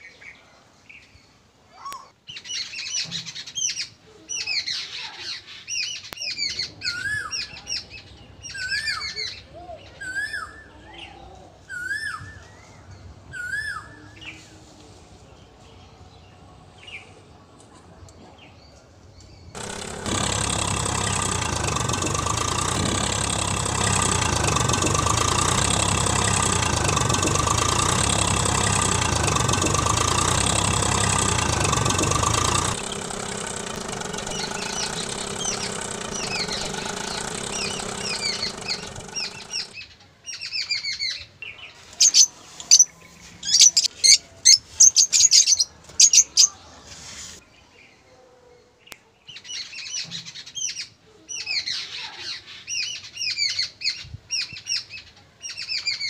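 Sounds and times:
birds chirping: 19.6s - 39.8s
tractor engine running: 19.6s - 39.8s.

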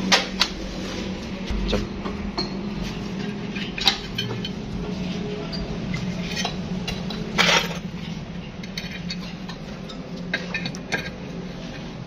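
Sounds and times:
steady low hum: 0.0s - 12.0s
metal parts clinking: 5.5s - 7.9s, 8.6s - 11.2s.

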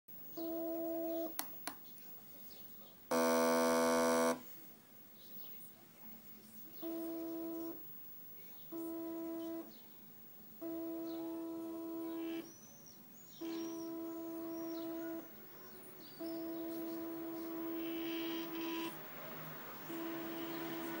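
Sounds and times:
stepper motor whine: 3.1s - 4.4s, 16.2s - 19.0s, 19.8s - 21.0s.

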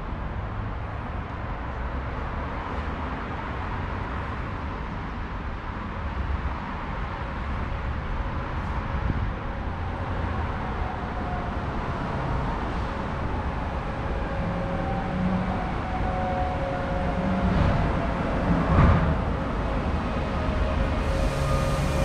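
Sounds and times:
low rumble of train: 0.0s - 22.0s
electric train traction whine: 10.6s - 22.0s.

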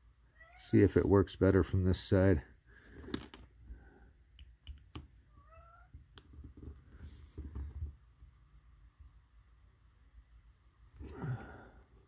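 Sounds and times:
cat meowing faintly: 5.3s - 5.9s.

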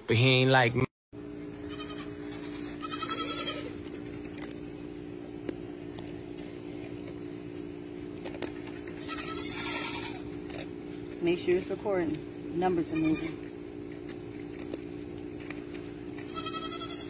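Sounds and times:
low hum: 0.0s - 17.0s
goat bleating: 1.7s - 3.9s, 9.0s - 10.4s, 12.8s - 13.4s, 16.2s - 17.0s.

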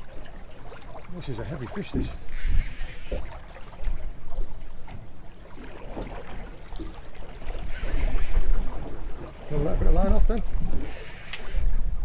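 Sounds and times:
water against boat hull: 0.0s - 12.0s
wind buffeting microphone: 7.5s - 12.0s
brief hiss: 7.7s - 8.5s, 10.8s - 11.7s.

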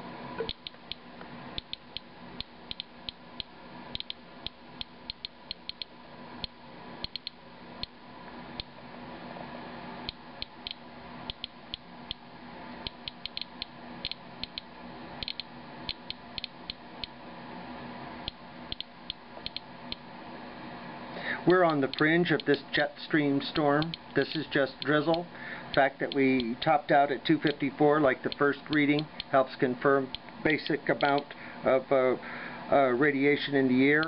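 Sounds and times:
faint steady hum: 0.0s - 34.0s
geiger counter clicking: 0.4s - 1.0s, 1.6s - 8.0s, 10.1s - 12.2s, 12.8s - 17.2s, 18.2s - 20.0s.

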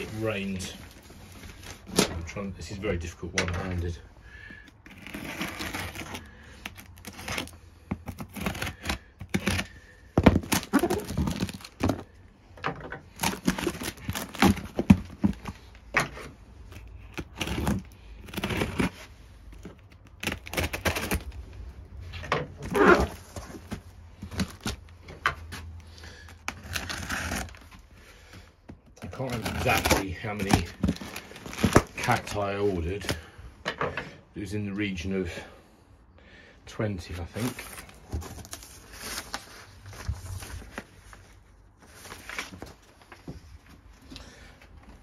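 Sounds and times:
scissors scraping cardboard: 4.8s - 12.1s, 13.1s - 21.4s, 25.9s - 27.8s, 29.0s - 32.3s.

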